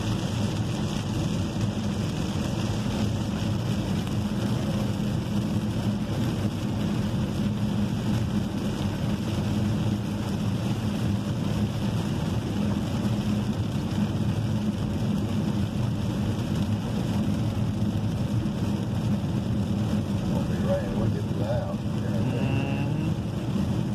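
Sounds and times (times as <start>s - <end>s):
engine and tyres drone: 13.4s - 23.9s.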